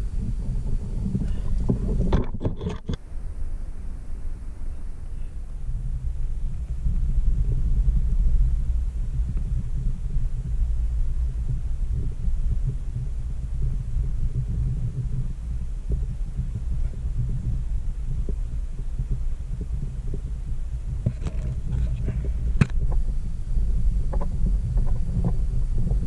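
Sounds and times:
microphone handling and wind rumble: 0:00.0 - 0:26.0
sharp scrapes and knocks: 0:01.7 - 0:03.0.

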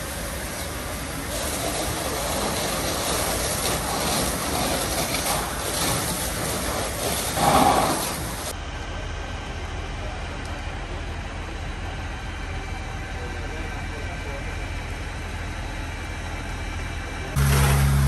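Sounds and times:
fire rushing and crackling: 0:00.0 - 0:08.6, 0:17.0 - 0:18.0.

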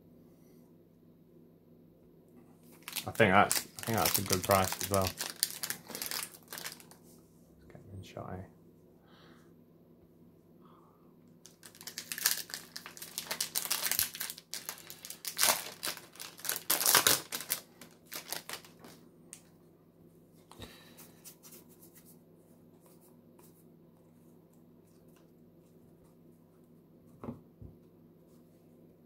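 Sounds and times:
foil wrapper tearing and crinkling: 0:02.7 - 0:07.0, 0:11.5 - 0:19.0.

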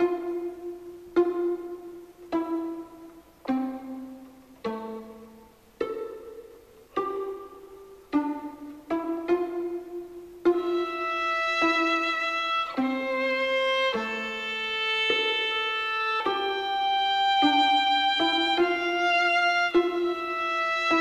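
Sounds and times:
plucked string melody: 0:00.0 - 0:21.0.

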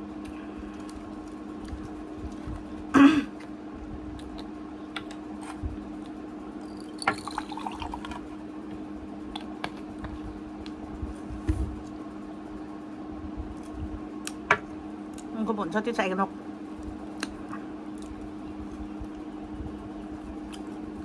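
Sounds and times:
drink pouring into cup: 0:06.6 - 0:08.3.

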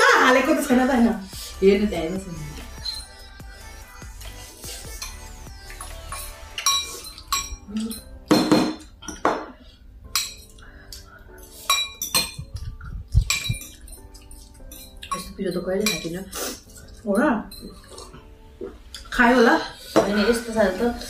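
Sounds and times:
faint background music: 0:00.0 - 0:21.0
forks clinking on ceramic bowls: 0:04.9 - 0:09.4, 0:10.1 - 0:12.6, 0:13.2 - 0:18.1.

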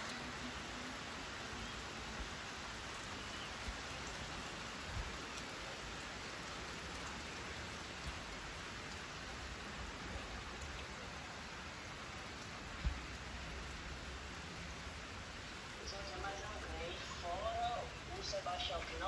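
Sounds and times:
steady rain falling: 0:00.0 - 0:19.0.

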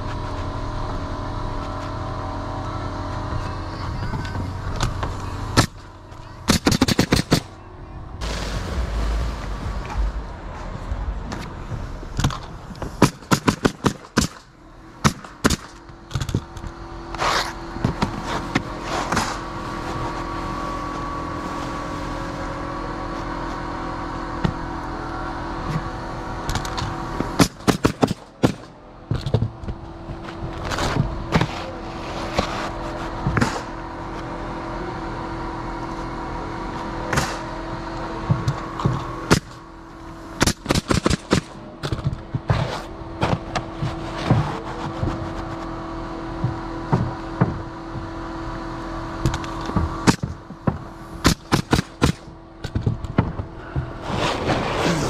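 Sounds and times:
steady machine hum: 0:00.0 - 0:55.0
pneumatic nailer firing: 0:06.4 - 0:07.5, 0:13.0 - 0:19.4, 0:26.5 - 0:29.4, 0:37.1 - 0:37.5, 0:39.2 - 0:39.6, 0:40.4 - 0:43.7, 0:49.3 - 0:53.4.

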